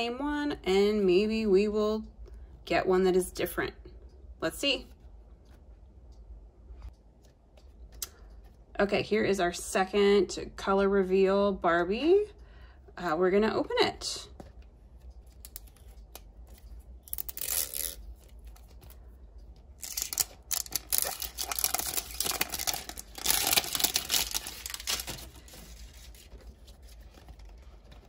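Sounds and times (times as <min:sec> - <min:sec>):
packaging tearing and crackling: 0:15.3 - 0:18.8, 0:19.8 - 0:26.4
packaging rustling: 0:19.8 - 0:28.0.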